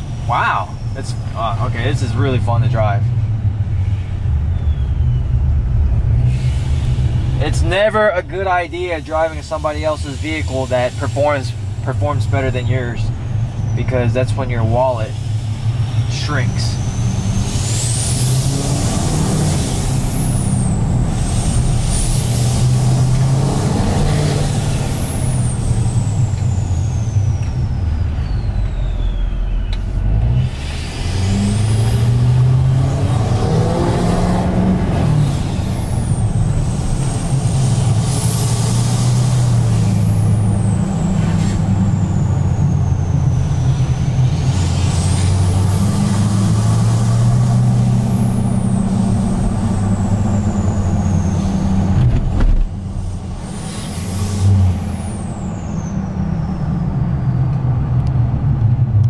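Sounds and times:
deep diesel exhaust: 0.0 - 59.0
turbo whistle: 23.9 - 29.8.

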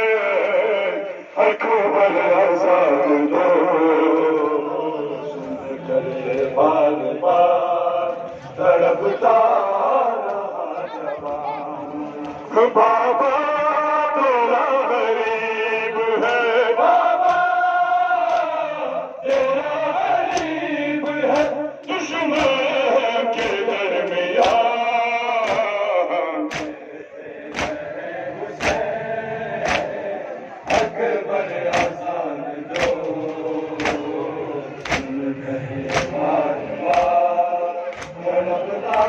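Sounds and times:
men chanting a lament: 0.0 - 39.0
hands slapping chests: 17.2 - 17.6, 18.2 - 18.6, 19.2 - 19.6, 20.2 - 24.8, 25.4 - 25.8, 26.5 - 26.8, 27.4 - 27.9, 28.5 - 28.9, 29.6 - 30.0, 30.6 - 31.0, 31.6 - 32.1, 32.7 - 35.2, 35.8 - 37.3, 37.9 - 39.0.

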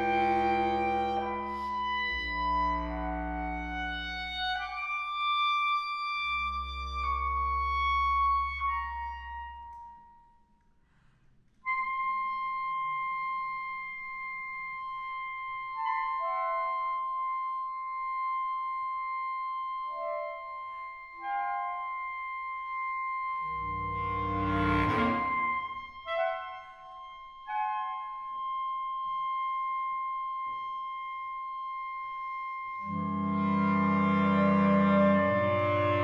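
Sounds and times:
clarinet ensemble playing: 0.0 - 10.0, 11.7 - 36.0.

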